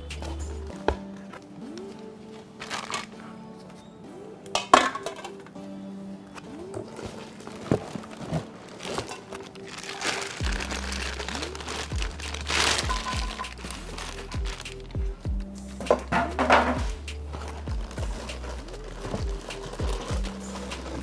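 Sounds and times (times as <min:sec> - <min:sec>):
background music: 0:00.0 - 0:21.0
plastic wrapping crinkling: 0:00.9 - 0:03.1, 0:06.8 - 0:15.0, 0:16.7 - 0:21.0.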